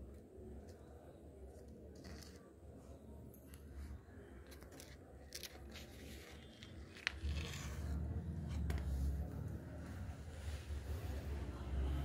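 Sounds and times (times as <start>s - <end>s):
paper brochure being handled: 3.5s - 9.3s.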